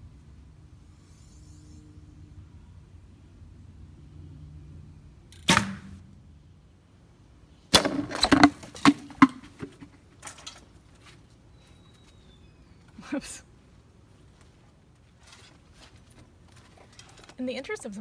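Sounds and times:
bow snap and arrow strike: 0:05.3 - 0:06.1.

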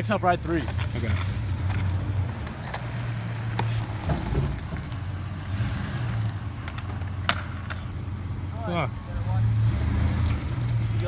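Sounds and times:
scooter clicking on asphalt: 0:00.4 - 0:03.8.

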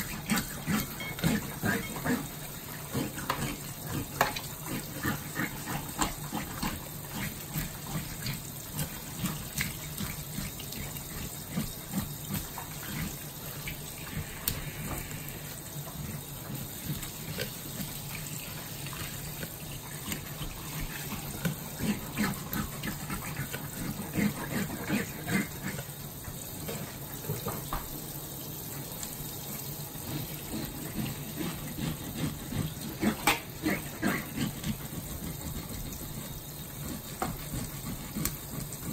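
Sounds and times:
splashes and knocks of fish rinsing: 0:00.0 - 0:28.2
faucet spraying water into sink: 0:00.0 - 0:38.9.

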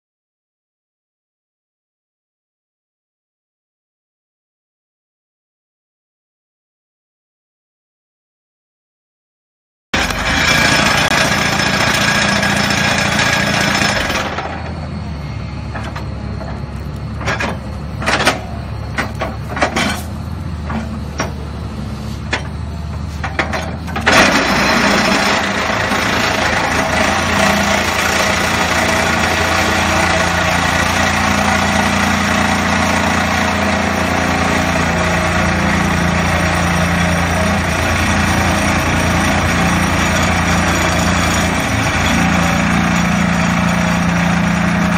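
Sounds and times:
plate compactor vibrating on gravel: 0:10.0 - 0:14.7, 0:23.2 - 0:44.9
excavator engine running: 0:10.0 - 0:44.9.

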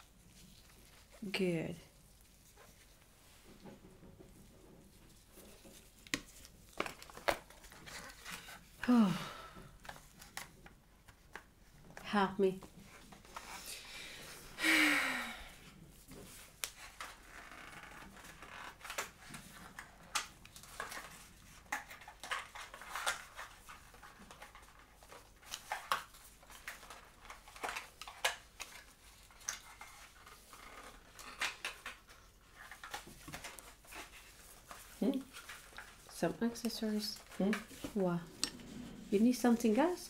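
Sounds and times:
packaging clicks and rustles: 0:05.1 - 0:08.8, 0:16.2 - 0:38.6.

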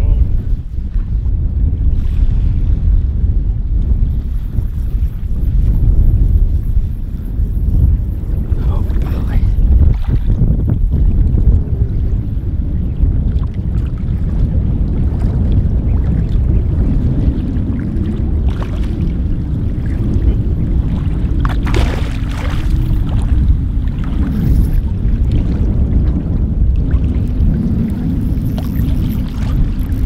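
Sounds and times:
wind buffeting microphone: 0:00.0 - 0:30.0
water splashing: 0:17.6 - 0:25.8, 0:26.8 - 0:30.0.

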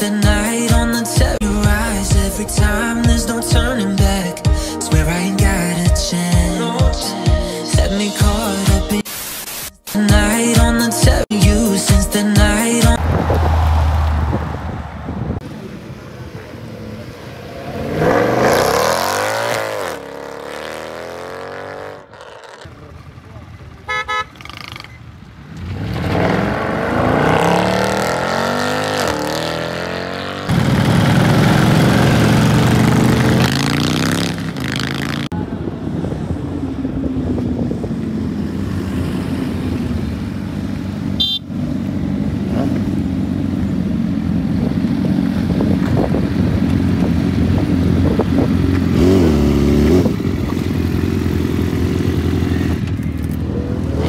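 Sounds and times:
engines revving and passing: 0:13.0 - 0:54.0
horn toot: 0:23.9 - 0:24.5, 0:41.2 - 0:41.6.

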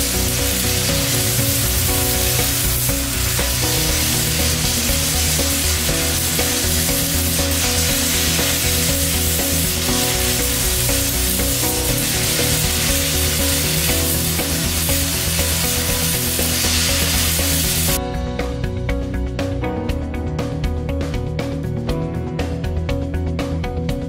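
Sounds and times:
welding arc crackling hiss: 0:00.0 - 0:18.0
background music: 0:00.0 - 0:24.0.

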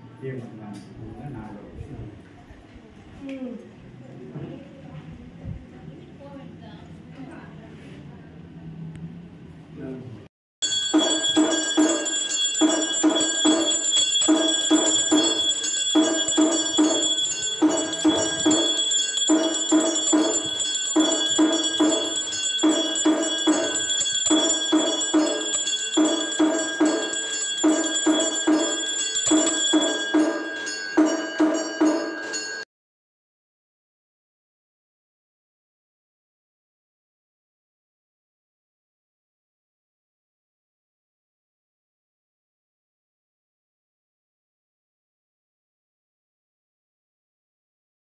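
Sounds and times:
repeating drum beat: 0:10.6 - 0:32.6
ringing bells: 0:10.6 - 0:32.7.

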